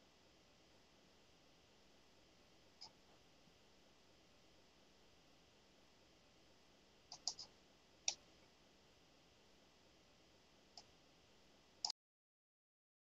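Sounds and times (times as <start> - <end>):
computer mouse clicking: 7.1 - 8.3.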